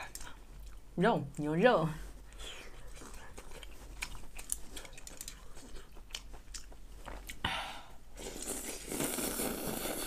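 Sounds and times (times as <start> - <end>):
person chewing with mouth clicks: 0.0 - 0.9, 2.3 - 7.4
slurping noodles: 8.2 - 10.0.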